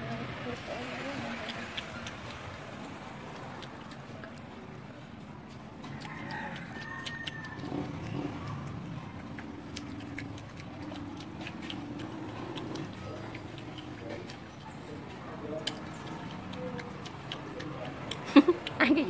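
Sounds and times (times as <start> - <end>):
rooster crowing: 5.8 - 8.0.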